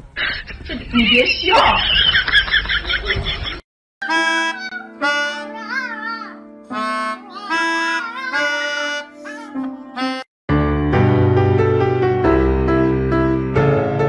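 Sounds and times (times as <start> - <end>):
melodica held notes: 4.0 - 6.1, 6.7 - 10.3
background music: 4.0 - 14.0.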